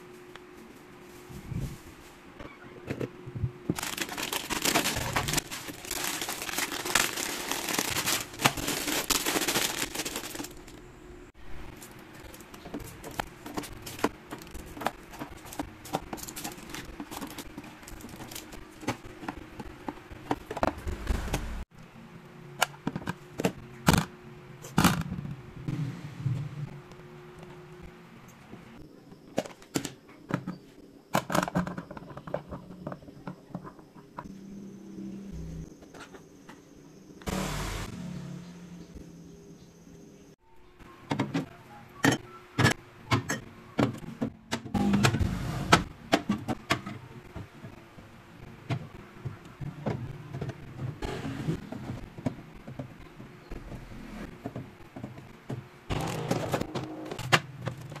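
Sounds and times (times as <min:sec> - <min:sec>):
plastic bottles knocking and clattering: 0:03.7 - 0:10.7.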